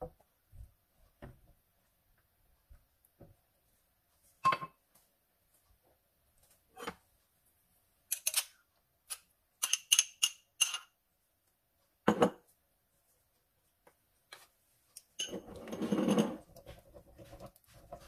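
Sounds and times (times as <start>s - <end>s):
metal spoon scraping bowl: 15.2s - 16.5s
spatula stirring sauce in pan: 16.4s - 18.0s.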